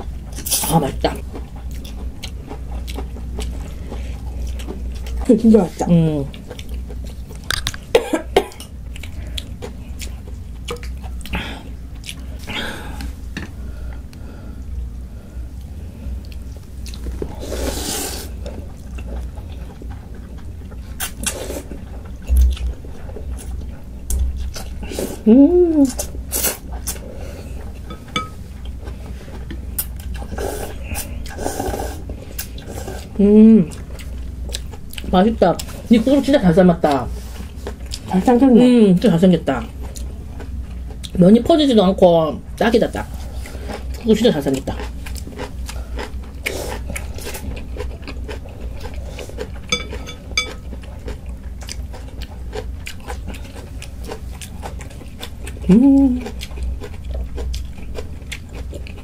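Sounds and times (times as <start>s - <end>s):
chewing and slurping: 0.3s - 5.6s, 15.6s - 25.2s, 25.9s - 36.2s, 43.0s - 59.0s
utensil clinking on dish: 49.7s - 50.6s.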